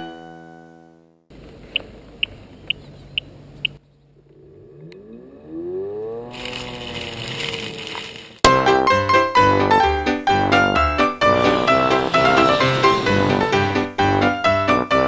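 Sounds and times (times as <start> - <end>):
electric blade motor whine: 11.2 - 14.0
hiss: 11.4 - 13.8.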